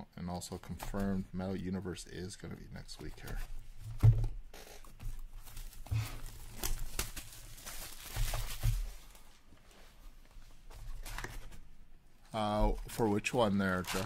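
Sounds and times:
plastic shrink wrap tearing: 0:13.4 - 0:14.0.

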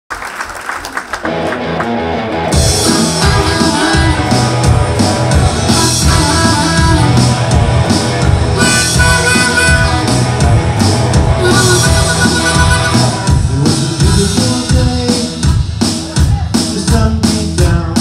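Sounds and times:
drums: 0:00.5 - 0:18.0
electric guitar: 0:01.0 - 0:16.2
bass guitar: 0:01.1 - 0:18.0
harmonica: 0:02.8 - 0:04.7, 0:05.5 - 0:07.4, 0:08.5 - 0:14.5.

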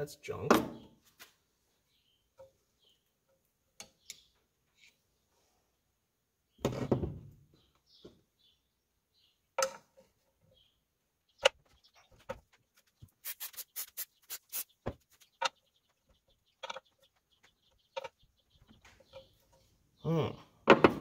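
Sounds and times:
aerosol spray squirts: 0:13.2 - 0:14.8.

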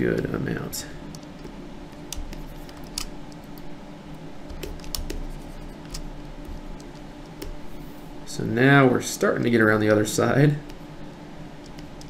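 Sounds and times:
steady low hum: 0:00.0 - 0:12.0
mouse and keyboard clicks: 0:01.1 - 0:03.7, 0:04.5 - 0:07.6.

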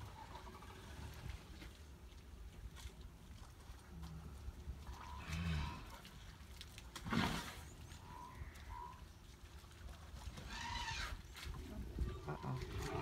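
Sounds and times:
wet mud sounds: 0:00.8 - 0:13.0
elephant noises: 0:10.4 - 0:13.0.

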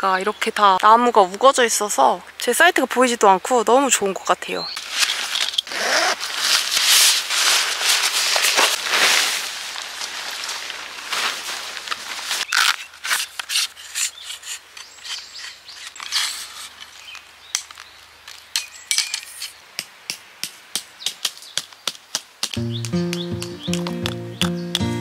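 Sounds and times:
tarp rustling over gravel: 0:04.8 - 0:13.4
camp gear clicks and taps: 0:16.0 - 0:25.0
rock hammering tent stake: 0:18.5 - 0:25.0.

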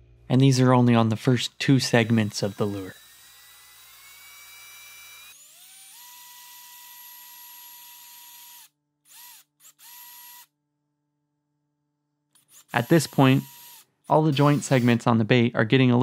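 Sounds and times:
cordless drill whining: 0:01.8 - 0:10.5, 0:12.4 - 0:15.0.

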